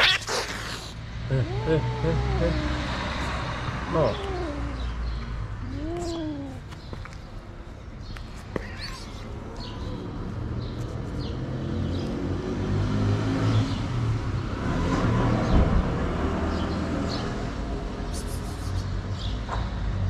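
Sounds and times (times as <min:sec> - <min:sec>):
small birds chirping: 0:00.1 - 0:12.4.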